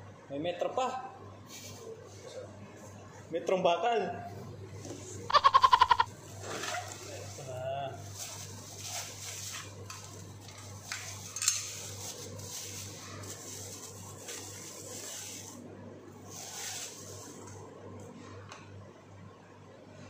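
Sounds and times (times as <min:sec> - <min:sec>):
plastic wrapping crinkling: 0:06.8 - 0:15.2.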